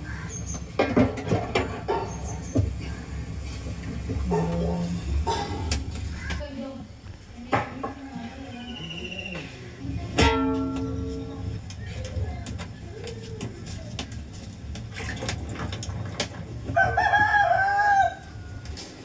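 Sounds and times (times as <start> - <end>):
metal cooking pot clanging: 10.2 - 11.3
rooster crowing: 16.7 - 18.8.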